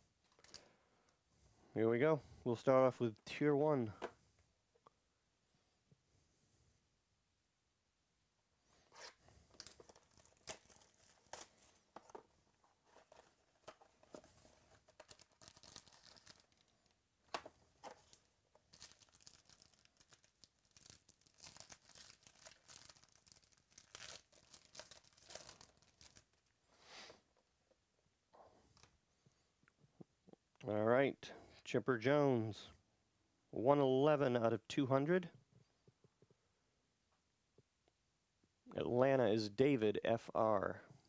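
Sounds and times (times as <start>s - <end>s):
foil wrapper ripping and crinkling: 9.6s - 11.8s, 14.5s - 17.0s, 17.9s - 26.5s
packaging being torn open: 9.6s - 11.8s, 14.7s - 16.9s, 17.9s - 26.4s.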